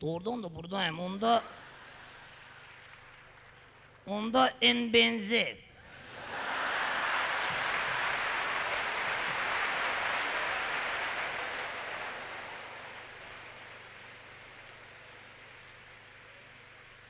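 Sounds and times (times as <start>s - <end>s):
audience applauding: 1.6s - 4.0s, 5.8s - 17.0s.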